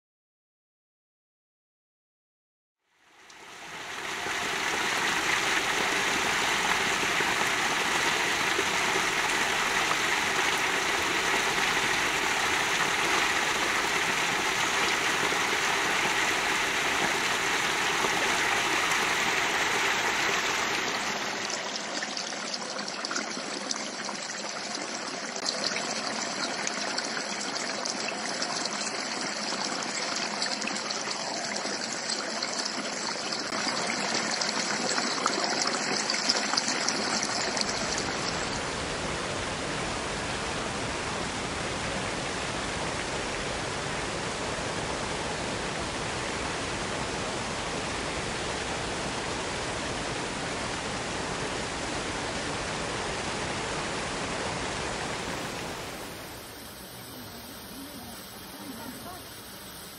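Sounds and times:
fountain water splashing on gravel: 3.4s - 22.0s
waterfall rushing: 3.4s - 22.6s, 36.9s - 59.9s.

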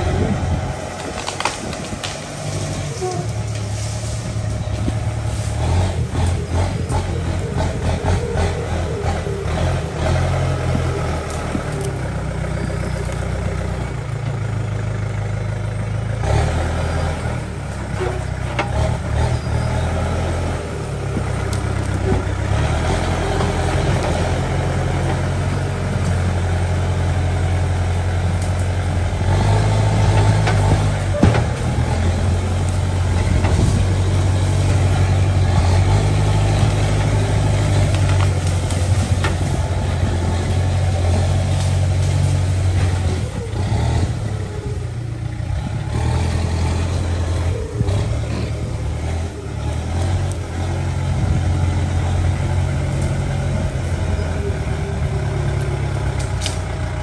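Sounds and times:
diesel engine running under load: 0.0s - 57.0s
sharp cracks of brush: 0.9s - 4.6s, 56.1s - 56.8s.

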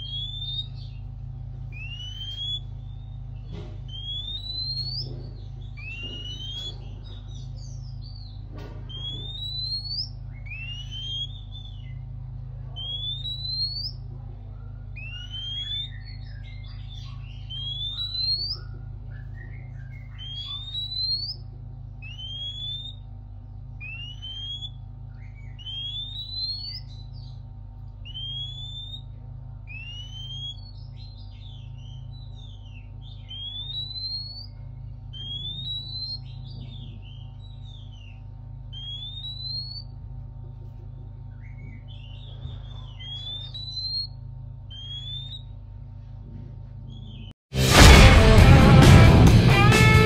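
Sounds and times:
bird singing whistled notes: 0.0s - 1.0s, 1.7s - 12.0s, 12.8s - 14.0s, 14.9s - 21.4s, 22.0s - 23.0s, 23.8s - 27.4s, 28.0s - 40.0s, 41.3s - 45.5s
steady low hum: 0.0s - 50.0s.

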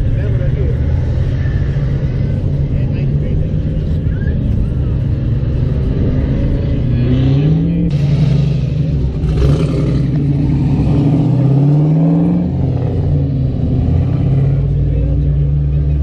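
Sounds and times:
car engines accelerating: 0.0s - 16.0s.

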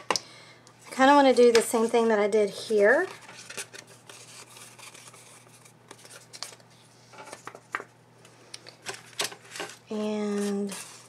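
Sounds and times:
paper rustling: 2.8s - 6.6s, 8.8s - 11.0s.

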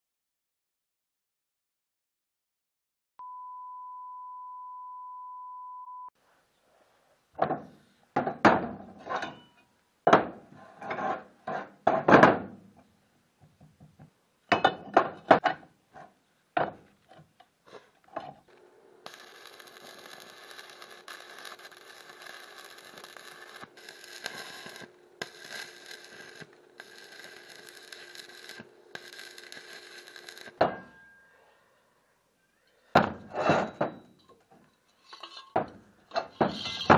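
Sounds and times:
steady electronic beep: 3.2s - 6.1s
arc welding crackling hiss: 18.5s - 30.6s
steel pieces clanking: 19.1s - 31.3s, 33.3s - 36.9s.

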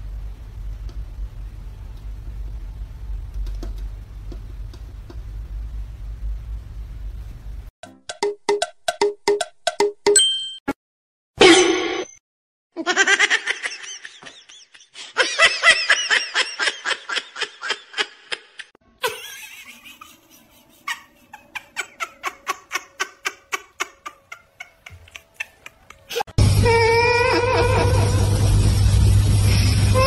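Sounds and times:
person laughing hard: 12.8s - 28.4s.

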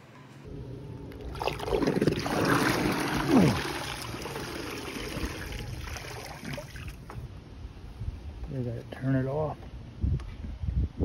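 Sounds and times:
water splashing and streaming: 1.1s - 7.2s.

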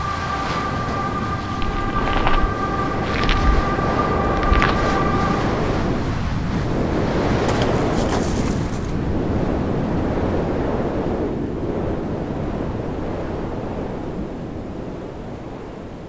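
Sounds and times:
short crackle: 0.0s - 5.8s, 7.4s - 9.0s
loud rushing noise: 0.0s - 9.0s.

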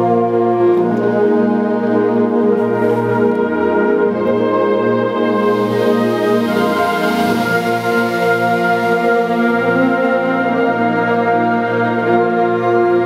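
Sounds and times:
concert band playing chords: 0.0s - 13.0s.

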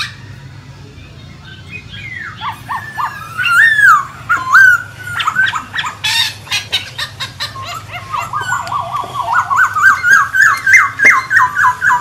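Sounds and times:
bird singing whistled phrases: 1.4s - 6.3s, 7.6s - 12.0s.

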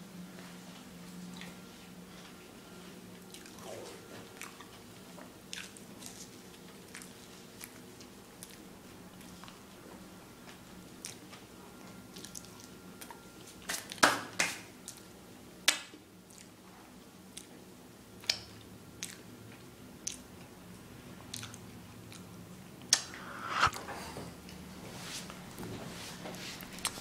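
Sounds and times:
person chewing wetly: 3.3s - 3.6s, 5.5s - 6.2s, 16.3s - 16.5s, 18.2s - 19.2s, 21.3s - 21.6s.

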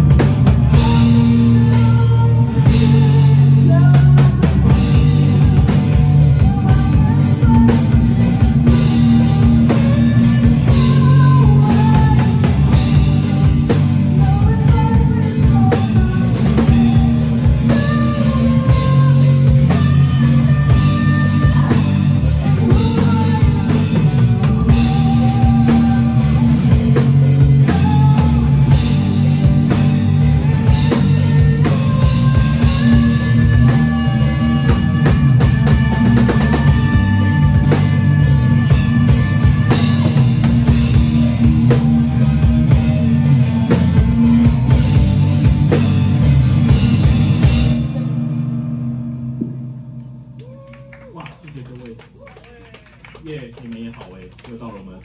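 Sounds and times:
rock band playing live: 0.0s - 51.0s.

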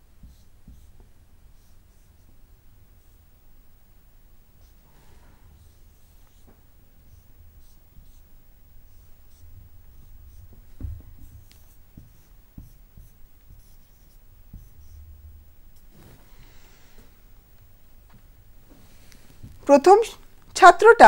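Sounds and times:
marker pen drawing on whiteboard: 0.1s - 3.3s, 5.6s - 16.4s
soft thump: 9.5s - 13.2s.

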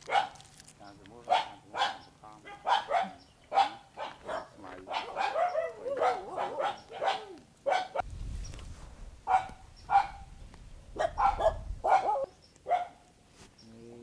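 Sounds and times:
dog barking: 0.0s - 0.4s, 1.2s - 8.0s, 9.2s - 10.3s, 11.0s - 13.0s.

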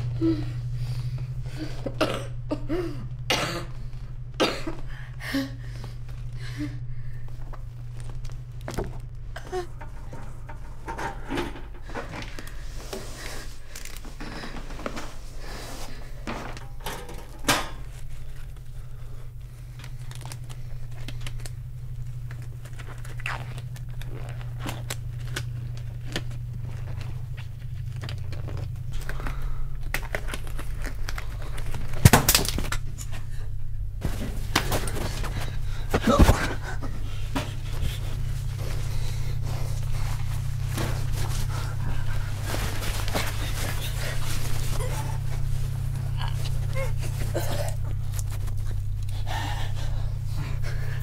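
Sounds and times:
steady low hum: 0.0s - 51.0s
cables and objects clattering on shelving: 7.2s - 22.8s, 34.0s - 49.4s.

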